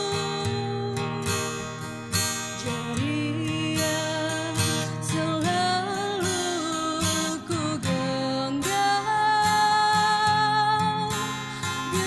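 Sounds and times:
strummed acoustic guitar: 0.0s - 12.0s
woman singing: 0.0s - 12.0s.

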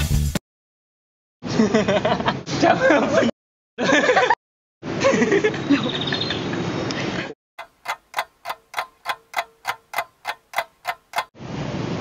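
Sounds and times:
clock-like ticks: 7.6s - 11.3s.

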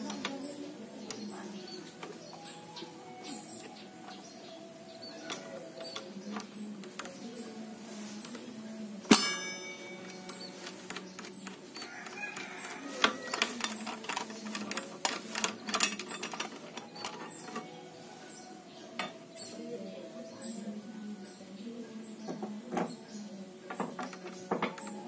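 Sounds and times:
metallic clank ringing: 9.1s - 10.6s.

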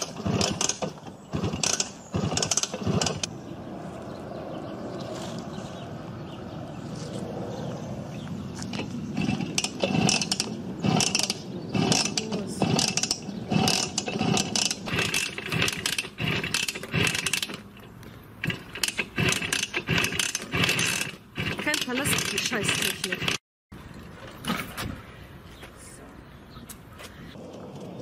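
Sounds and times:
motorcycle kickstarter clattering: 0.0s - 3.3s, 8.6s - 23.4s.

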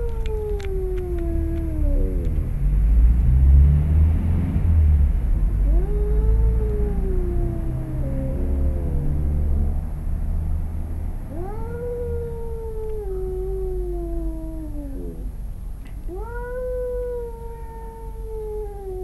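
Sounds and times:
cat yowling: 0.0s - 2.4s, 5.6s - 9.4s, 11.3s - 15.3s, 16.1s - 19.0s.

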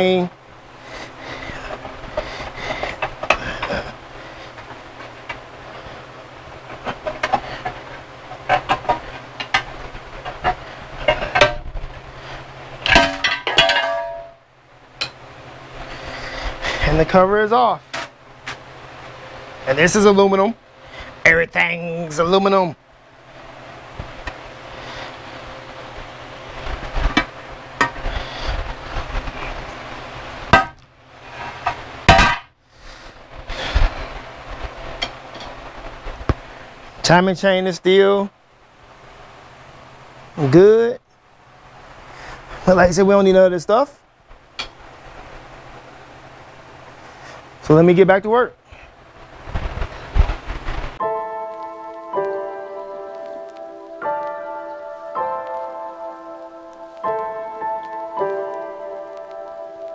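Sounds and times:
ringing metallic clang: 12.9s - 14.4s.

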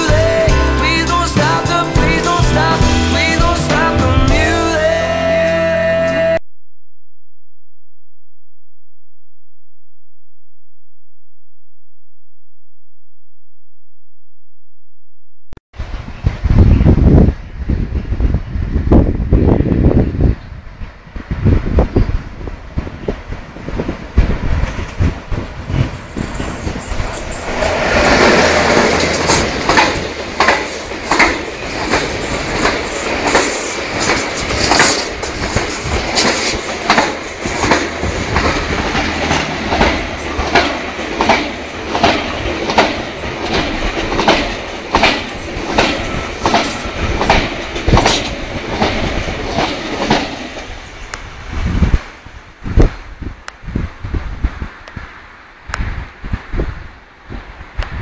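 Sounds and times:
train passing at speed: 15.8s - 58.0s
train wheel clacks: 24.4s - 50.8s.

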